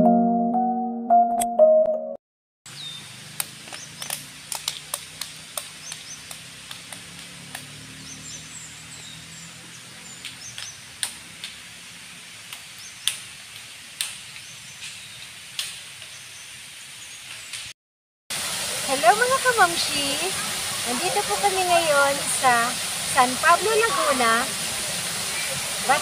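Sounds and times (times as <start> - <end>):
high-pitched hiss: 18.4 - 26.0.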